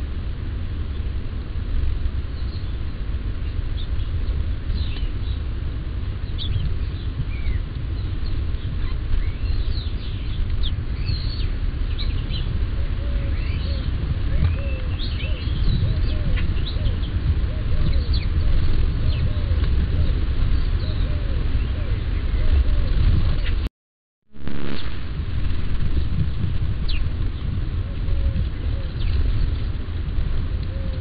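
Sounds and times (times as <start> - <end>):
steady low rumble: 0.0 - 23.7, 24.3 - 31.0
small birds chirping: 2.4 - 5.5, 6.2 - 23.6, 24.6 - 29.8
lower bird call: 6.2 - 23.6, 24.5 - 29.7.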